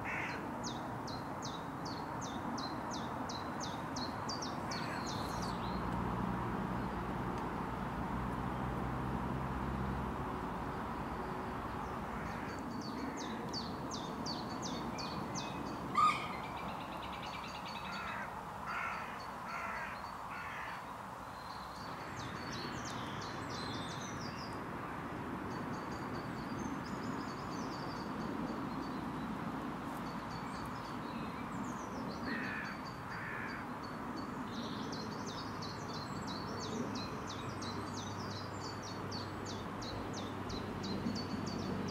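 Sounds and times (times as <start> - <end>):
small birds chirping: 0.7 - 7.1.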